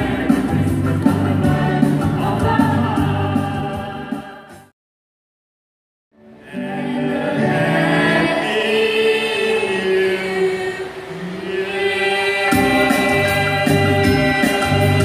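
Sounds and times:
group singing a carol: 0.0s - 4.7s, 6.4s - 15.0s.

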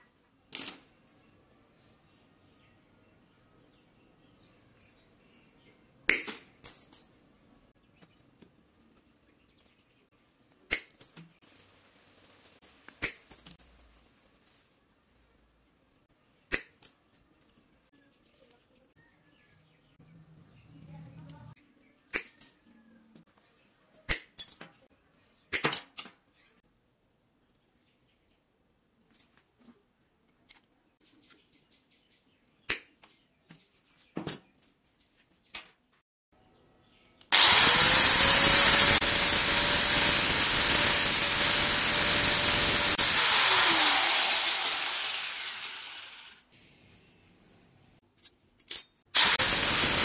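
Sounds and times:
pliers cracking a metal rod: 48.2s - 49.0s
pliers cutting metal rod: 48.2s - 50.0s.

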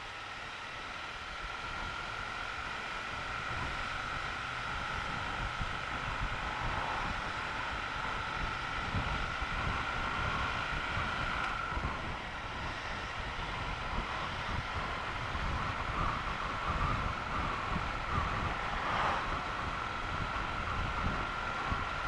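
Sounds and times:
wind buffeting microphone: 8.4s - 22.0s.

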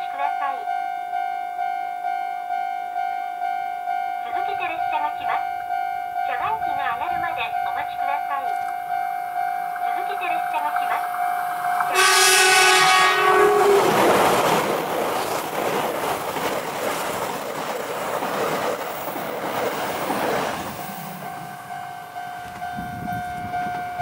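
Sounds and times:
level-crossing warning bell: 0.0s - 16.6s, 21.0s - 24.0s
train wheels on rails: 4.3s - 24.0s
train horn: 11.8s - 14.6s.

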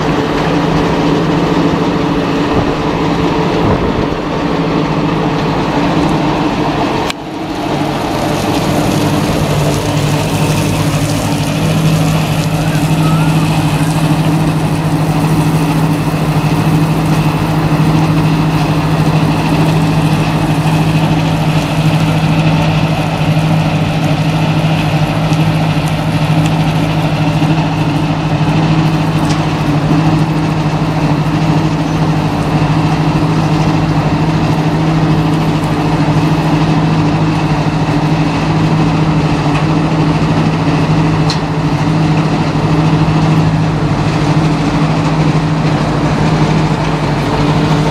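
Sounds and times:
crusher engine drone: 0.0s - 47.9s
crushed stone rattling off conveyor: 7.4s - 27.6s.

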